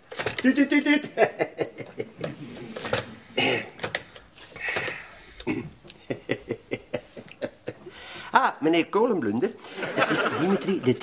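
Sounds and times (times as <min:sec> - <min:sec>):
man clearing his throat: 0:03.3 - 0:03.8, 0:05.4 - 0:05.8.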